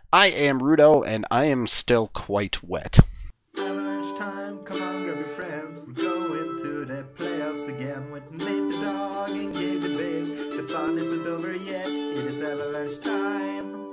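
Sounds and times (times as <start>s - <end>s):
strummed plucked strings music: 3.6s - 13.9s.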